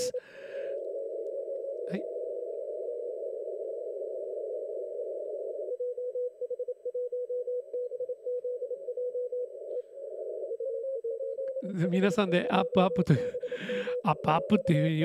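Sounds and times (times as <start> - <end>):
radio band noise hiss: 0.0 - 0.8, 11.6 - 15.0
morse code tone: 5.8 - 15.0.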